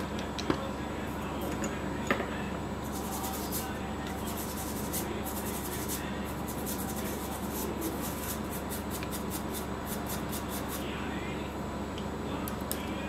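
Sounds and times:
electrical hum: 0.0 - 13.0
tool scratching circuit board: 2.8 - 10.8.

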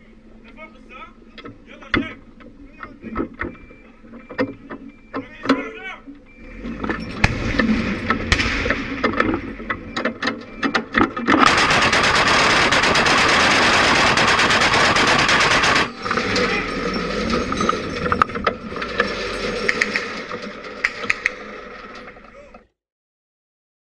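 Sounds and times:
automatic gunfire burst: 11.4 - 16.4
sharp clacks and knocks: 17.4 - 22.2.

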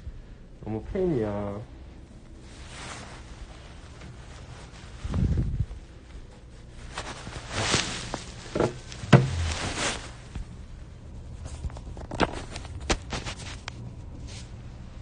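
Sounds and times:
bedding rustling: 2.2 - 13.6
phone being handled: 8.5 - 9.8
dull thump: 8.5 - 10.1.

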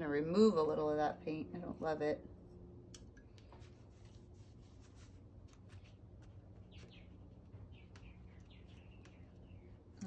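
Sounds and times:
cloth rag wiping paint: 3.6 - 7.0
faint bird chirp: 6.6 - 10.0.

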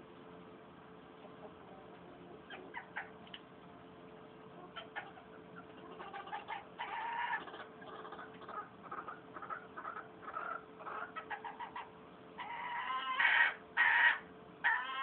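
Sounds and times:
faint steady hum: 0.0 - 15.0
chickens clucking: 1.1 - 3.8, 4.4 - 15.0.

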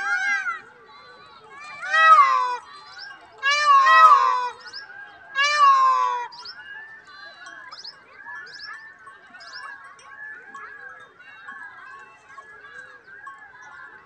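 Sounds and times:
peacock call: 1.7 - 6.7
quiet bird chirps: 4.5 - 5.4, 6.3 - 10.1.

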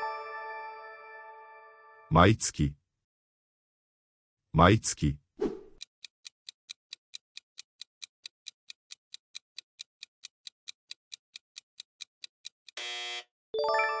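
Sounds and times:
clock ticking: 5.8 - 12.8.

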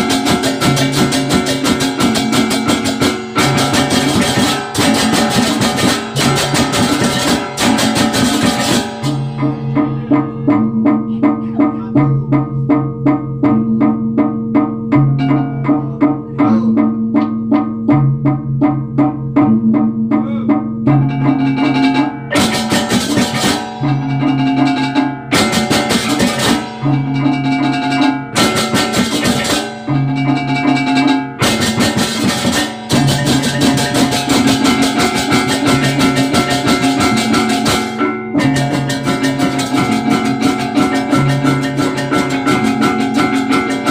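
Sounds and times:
fast mallet strokes: 0.0 - 43.9
gamelan ensemble playing: 0.0 - 43.9.

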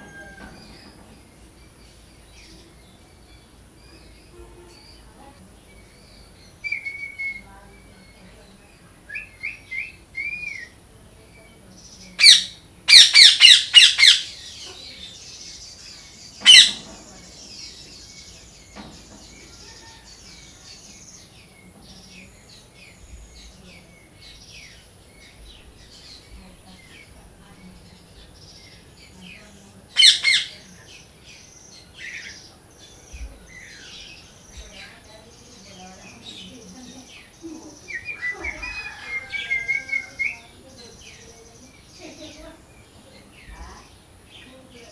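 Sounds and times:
parakeet screeching: 12.2 - 14.4, 16.4 - 16.9, 30.0 - 30.5, 38.1 - 40.5.

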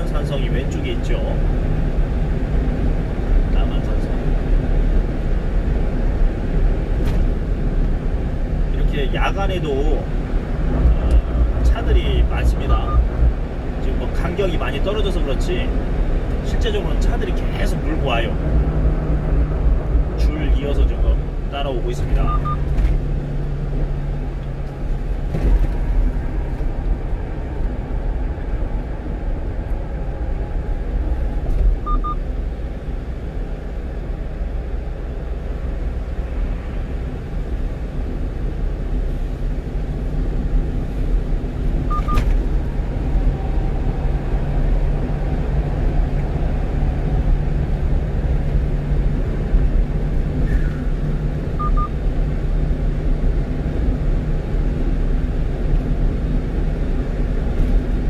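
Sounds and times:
road and engine drone in truck cab: 0.0 - 58.0
faint short double beep: 41.9 - 42.2.

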